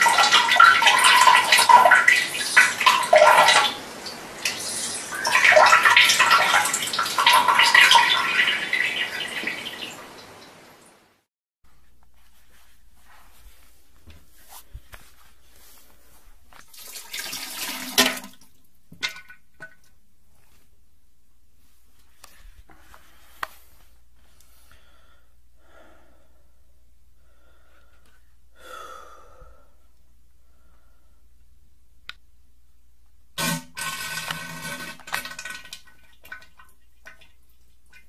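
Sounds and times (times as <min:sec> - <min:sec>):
water drips and plops: 0:00.0 - 0:10.7, 0:35.0 - 0:38.0
splattering into toilet bowl: 0:16.7 - 0:19.8.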